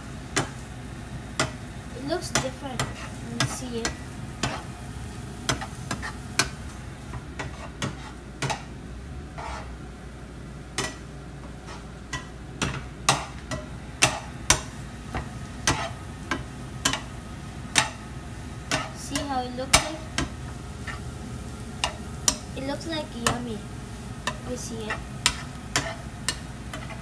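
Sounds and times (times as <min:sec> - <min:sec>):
frying hiss: 0:00.0 - 0:27.0
plastic spatula scraping frying pan: 0:09.3 - 0:09.8, 0:11.5 - 0:12.0.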